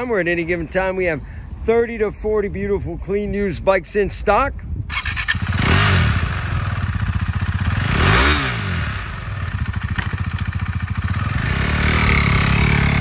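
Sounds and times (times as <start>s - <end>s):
motorcycle engine idling and revving: 4.9s - 13.0s.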